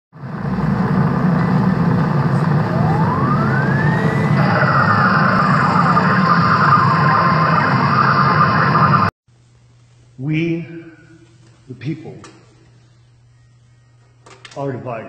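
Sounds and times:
loud rumbling: 0:00.2 - 0:09.1
rising and falling siren tone: 0:00.2 - 0:09.1.

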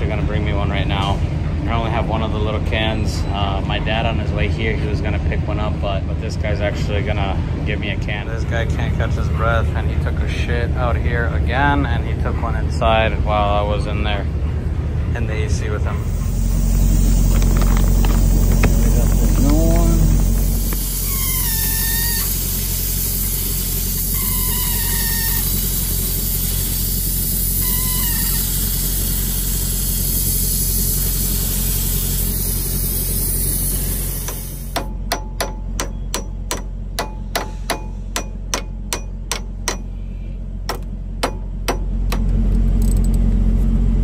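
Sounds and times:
low rumble: 0:00.0 - 0:44.0
refrigerant hissing: 0:15.9 - 0:34.8.

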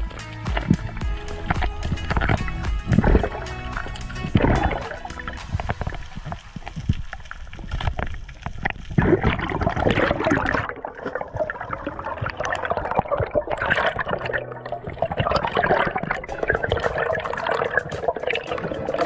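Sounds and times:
underwater clicks and knocks: 0:00.0 - 0:14.3, 0:15.0 - 0:19.0
air bubbles gurgling underwater: 0:00.6 - 0:19.0.

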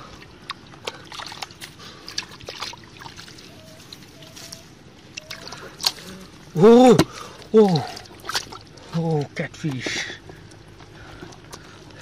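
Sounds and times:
muddy water splashing: 0:00.0 - 0:09.8
wet squelching in mud: 0:00.0 - 0:09.8
short wet smacks: 0:07.0 - 0:08.6.

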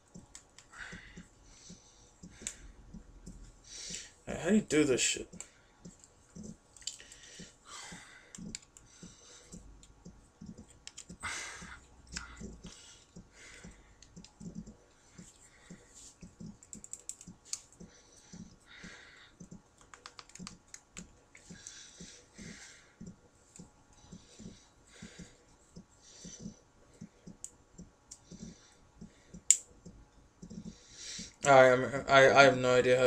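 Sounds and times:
small plastic parts clicking: 0:06.7 - 0:07.3, 0:09.8 - 0:11.2, 0:16.6 - 0:17.8, 0:19.8 - 0:21.8.

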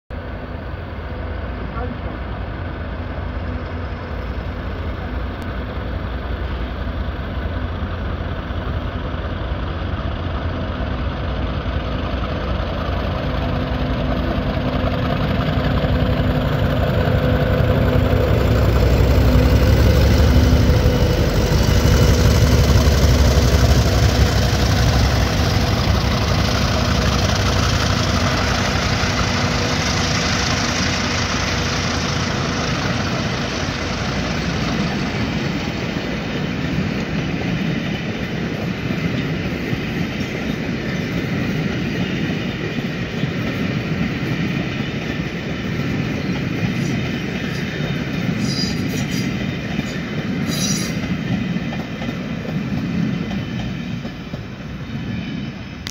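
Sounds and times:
diesel locomotive engine rumble: 0:00.1 - 0:55.9
train wheels rolling on rails: 0:00.6 - 0:55.9.

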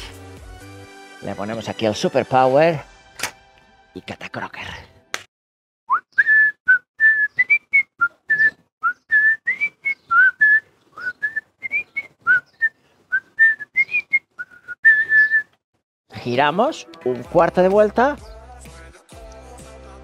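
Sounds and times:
person whistling a tune: 0:05.9 - 0:15.6.

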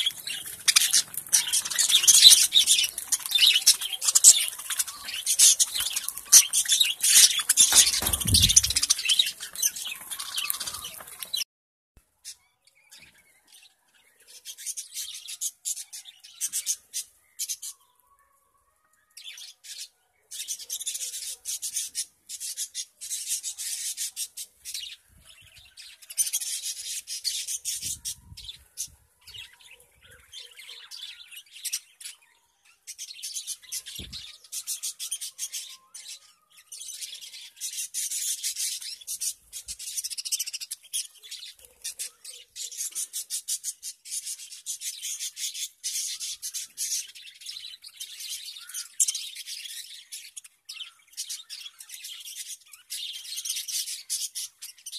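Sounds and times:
budgerigars chirping: 0:00.0 - 0:11.4.

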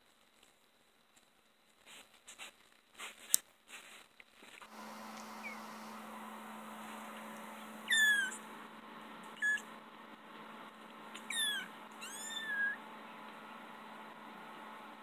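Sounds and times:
faint steady hum: 0:00.0 - 0:15.0
kittens mewing: 0:07.8 - 0:08.4, 0:09.3 - 0:09.7, 0:11.2 - 0:12.8.

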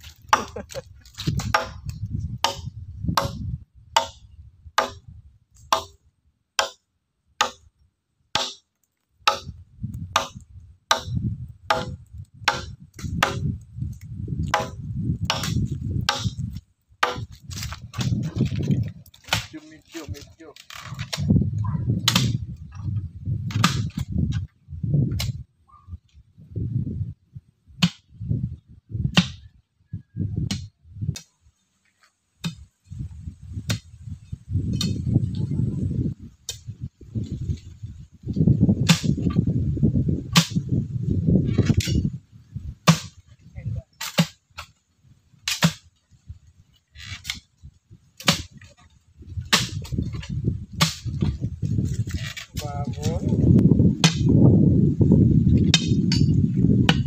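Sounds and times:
dull low thuds: 0:00.0 - 0:06.0, 0:09.2 - 0:19.6, 0:20.9 - 0:25.5, 0:32.4 - 0:43.4, 0:47.4 - 0:57.0
sharp tool strikes: 0:04.8 - 0:05.0, 0:05.7 - 0:06.0, 0:06.6 - 0:06.8, 0:07.4 - 0:07.7, 0:08.4 - 0:08.7, 0:09.3 - 0:09.5, 0:10.1 - 0:13.5, 0:14.4 - 0:16.4, 0:22.0 - 0:22.4, 0:38.8 - 0:39.4, 0:40.3 - 0:40.6, 0:42.8 - 0:43.2, 0:45.4 - 0:45.8, 0:48.2 - 0:48.6, 0:49.5 - 0:51.2, 0:54.0 - 0:54.3, 0:55.6 - 0:57.0
low scraping and rustling: 0:11.3 - 0:25.4, 0:31.4 - 0:57.0.

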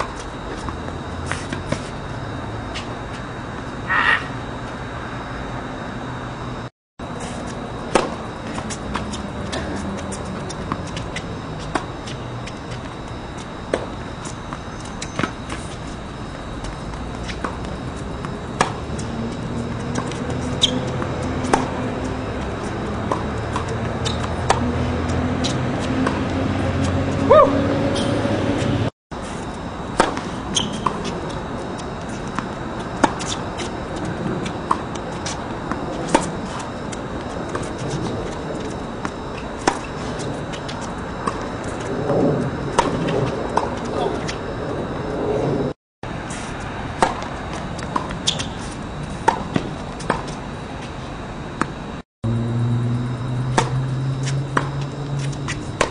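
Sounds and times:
tennis balls struck and bouncing: 0:07.9 - 0:28.7, 0:29.9 - 0:44.4, 0:46.9 - 0:50.4, 0:53.4 - 0:55.9
low drone rising in pitch: 0:17.0 - 0:28.9, 0:52.2 - 0:55.8.

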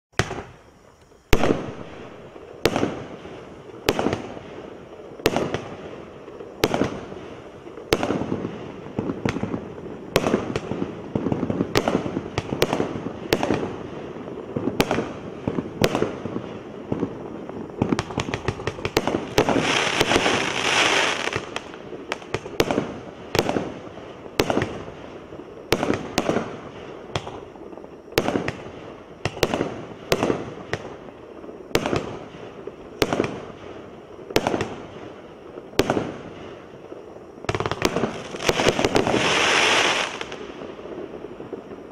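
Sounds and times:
firework crackling: 0:00.1 - 0:41.9.

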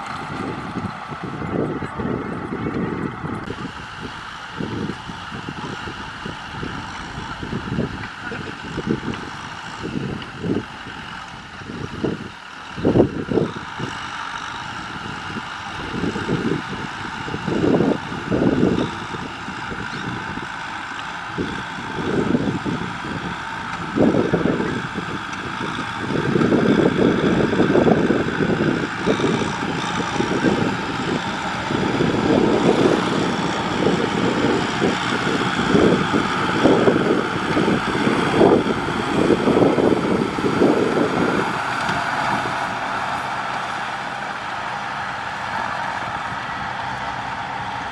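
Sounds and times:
tractor diesel engine running: 0:00.0 - 0:47.9
wind rumbling on microphone: 0:00.0 - 0:47.9.

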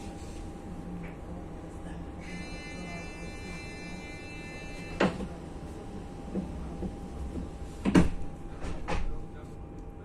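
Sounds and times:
train electrical hum: 0:00.0 - 0:10.0
train door warning tones: 0:02.2 - 0:05.4.

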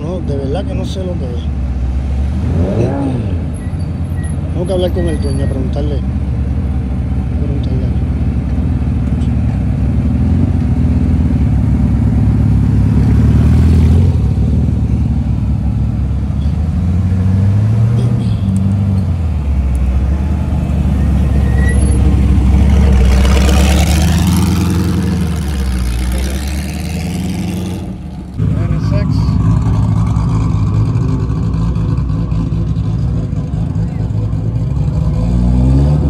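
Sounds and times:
race car engine revving: 0:02.2 - 0:03.6, 0:07.9 - 0:36.0.

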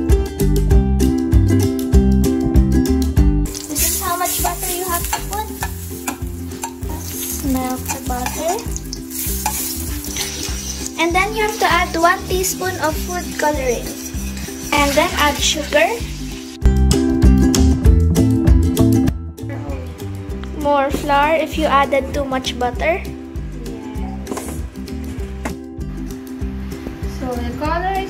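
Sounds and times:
background music with steady beat: 0:00.0 - 0:28.0
butter sizzling in pan: 0:03.5 - 0:16.6
metal spoon scraping pan: 0:03.7 - 0:16.6.

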